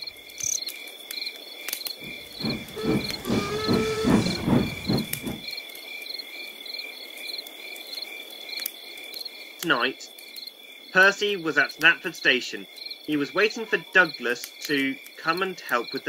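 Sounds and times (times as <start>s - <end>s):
crickets chirping: 0.0s - 16.0s
steam locomotive chuffing: 2.0s - 5.5s.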